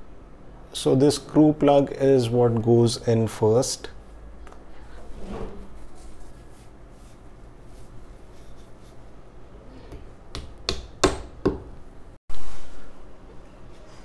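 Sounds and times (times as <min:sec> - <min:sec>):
hammer tapping wall plug: 0:09.9 - 0:11.7.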